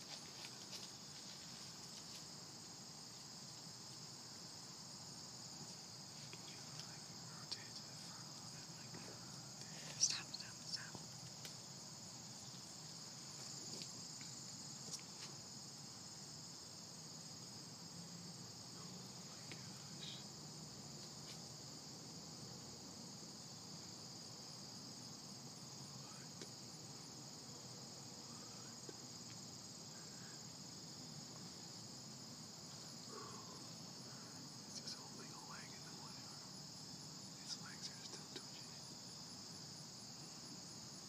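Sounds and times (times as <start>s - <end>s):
crickets trilling: 0.0s - 41.0s
faint clicks: 6.3s - 9.0s.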